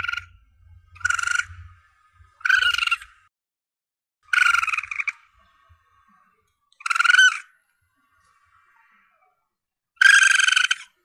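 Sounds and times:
civet shrill cries: 0.0s - 1.7s, 2.4s - 3.2s, 4.3s - 5.2s, 6.8s - 7.6s, 10.0s - 11.0s.

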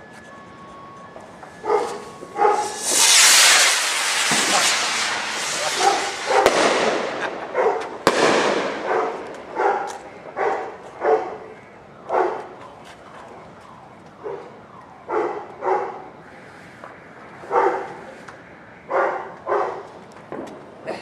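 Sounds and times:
dog barking: 1.6s - 2.6s, 7.5s - 7.9s, 8.9s - 11.4s, 12.1s - 12.4s, 15.1s - 16.1s, 17.5s - 18.0s, 18.9s - 19.9s
firework bang with hiss: 1.8s - 9.4s.

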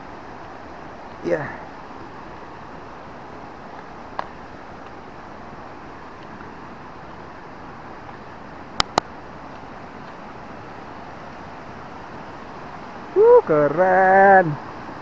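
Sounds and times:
mountain river rushing: 0.0s - 15.0s
sharp clicks: 8.8s - 9.1s.

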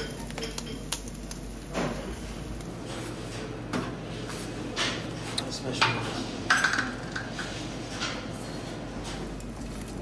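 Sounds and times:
cooking utensils and dishes clattering: 2.8s - 9.4s.

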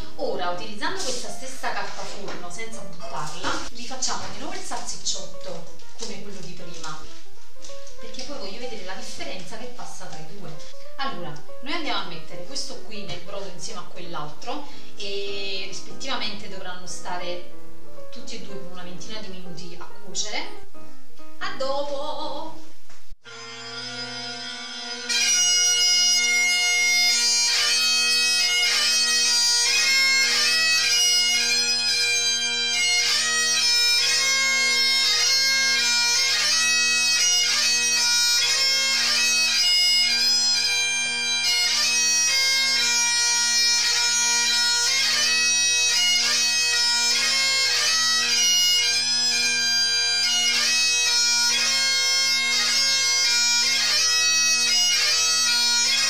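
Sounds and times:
bagpipes playing: 23.2s - 56.0s.

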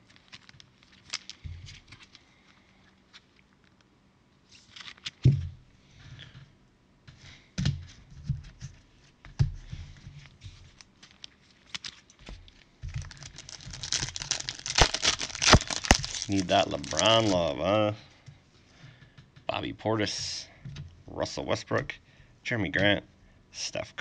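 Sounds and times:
foil pack crinkling and tearing: 0.0s - 3.4s, 4.5s - 5.2s, 10.7s - 17.6s
card packs knocking and rustling: 12.8s - 17.4s.

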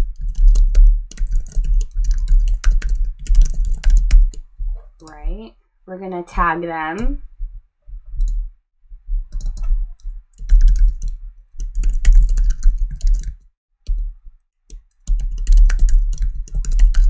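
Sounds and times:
keyboard typing clicks: 0.1s - 4.4s, 9.3s - 14.1s, 15.0s - 17.0s.

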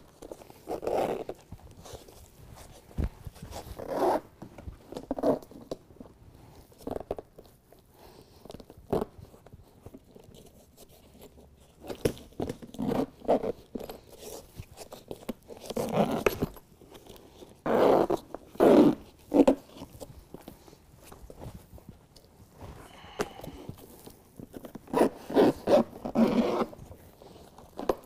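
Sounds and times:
heavy mats rustling: 0.4s - 5.2s, 19.4s - 28.0s
zippers pulled closed: 3.8s - 4.3s, 15.7s - 16.5s, 17.6s - 19.8s, 24.8s - 28.0s.

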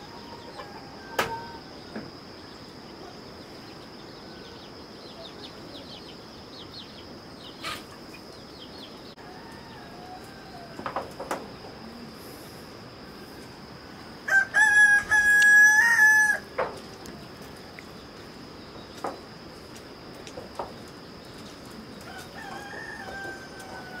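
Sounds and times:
rooster crowing: 0.0s - 1.9s, 9.2s - 11.1s, 13.2s - 16.6s, 22.0s - 24.0s.

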